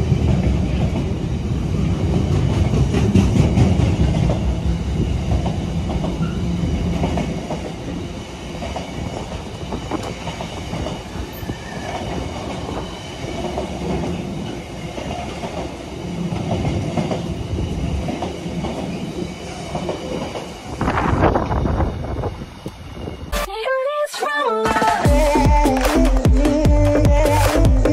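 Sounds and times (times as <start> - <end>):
train wheels clattering over rail joints: 2.1 - 21.4.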